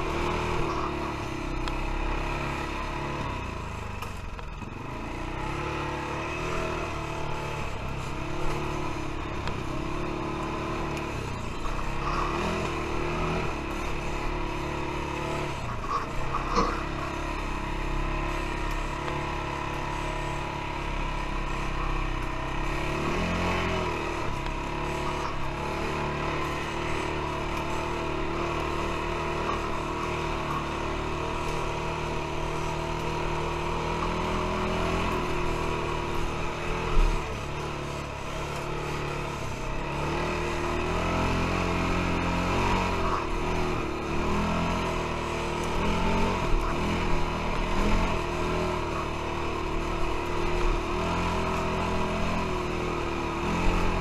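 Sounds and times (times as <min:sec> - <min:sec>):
quad bike engine revving: 0:00.0 - 0:54.0.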